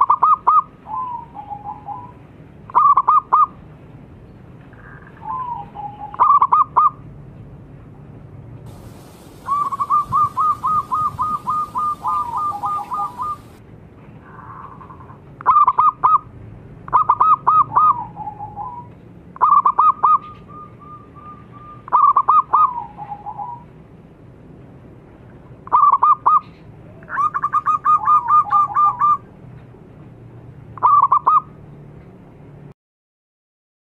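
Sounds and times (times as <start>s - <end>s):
low steady hum: 7.0s - 15.2s
doves cooing: 8.7s - 13.6s.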